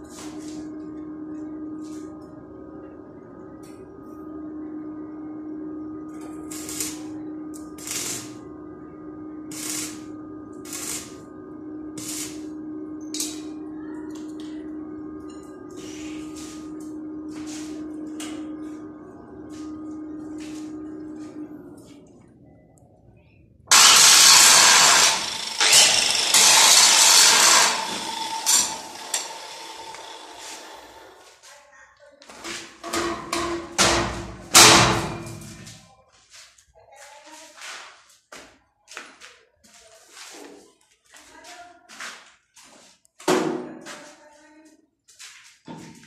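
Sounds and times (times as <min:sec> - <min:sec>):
steady low hum: 0:00.0 - 0:31.4
welder arc crackling hiss: 0:06.4 - 0:07.1, 0:07.8 - 0:08.4, 0:09.5 - 0:11.2, 0:12.0 - 0:12.4, 0:23.7 - 0:31.1
angle grinder grinding steel: 0:23.7 - 0:31.2.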